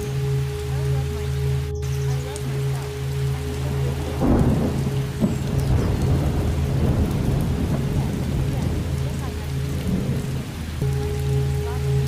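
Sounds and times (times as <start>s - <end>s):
low drone of held tones: 0.0s - 12.0s
steady rain: 0.0s - 12.0s
thunder rolling: 3.5s - 10.8s.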